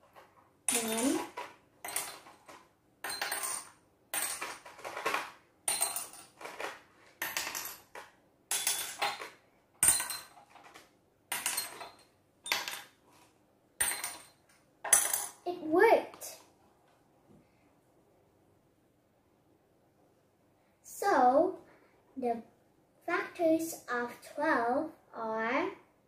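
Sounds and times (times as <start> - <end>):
objects clinking into glass jars: 0.7 - 13.0, 13.8 - 15.4.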